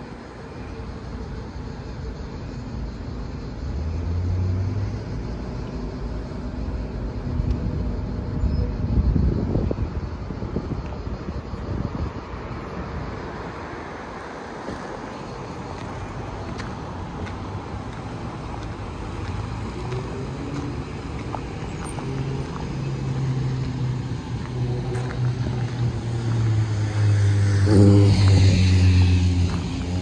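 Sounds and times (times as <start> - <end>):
cars driving past: 0.0 - 30.0.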